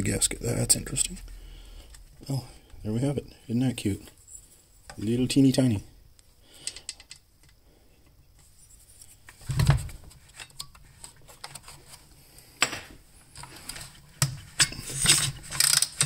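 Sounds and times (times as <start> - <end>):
tools and metal parts clicking: 14.6 - 16.0.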